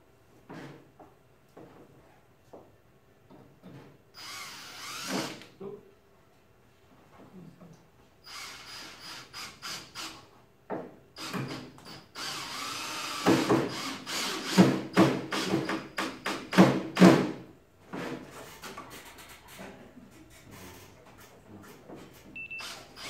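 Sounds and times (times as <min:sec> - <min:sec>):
cordless drill boring into wood: 0:04.2 - 0:05.5, 0:08.3 - 0:10.2, 0:11.2 - 0:16.5.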